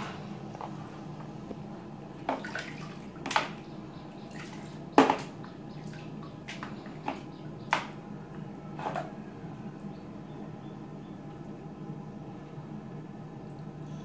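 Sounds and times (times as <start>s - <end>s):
water splashing in plastic basin: 2.2s - 8.0s.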